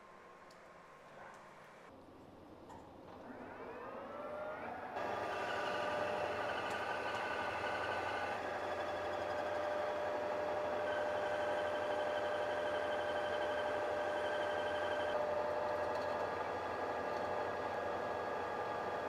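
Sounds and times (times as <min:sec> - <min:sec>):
lathe cutting whine: 0:05.0 - 0:19.0
metal lathe running: 0:05.0 - 0:19.0.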